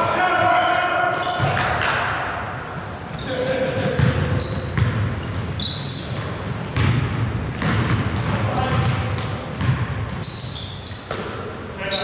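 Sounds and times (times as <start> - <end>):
sneaker squeaks: 0.0 - 2.2, 3.0 - 12.0
basketball dribbling on wood floor: 3.8 - 5.1, 6.7 - 10.1.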